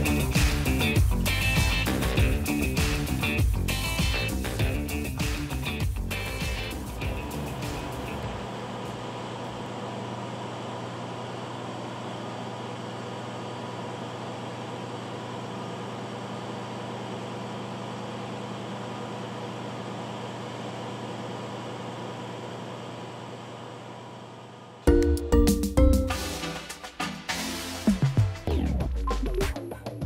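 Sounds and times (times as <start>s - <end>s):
combine harvester humming: 3.7s - 9.7s.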